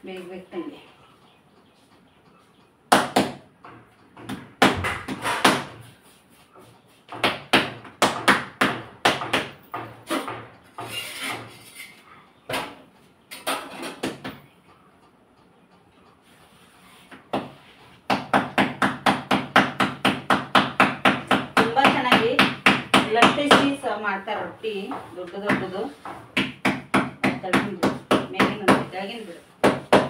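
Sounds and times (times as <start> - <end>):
hands slapping dough: 4.2 - 10.4, 17.1 - 23.8, 25.3 - 28.9.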